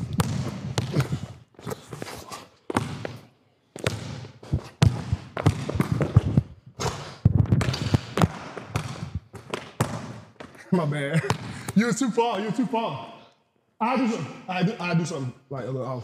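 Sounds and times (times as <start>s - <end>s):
basketball bouncing on indoor court: 0.0s - 10.6s, 11.2s - 11.8s
players' footsteps: 0.0s - 10.6s.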